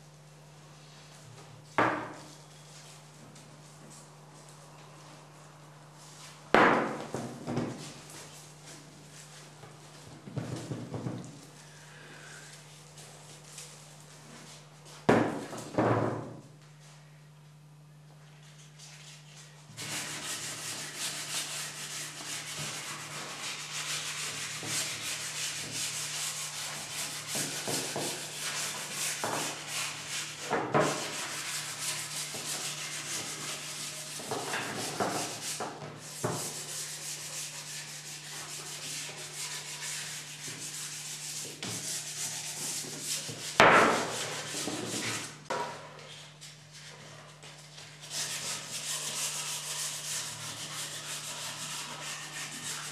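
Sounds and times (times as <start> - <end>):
hand sanding wood: 19.8 - 45.4, 47.8 - 52.9.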